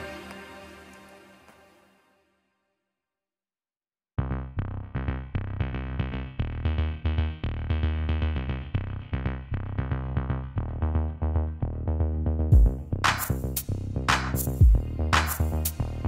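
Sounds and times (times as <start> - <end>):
electronic music with drum machine: 12.5 - 16.0.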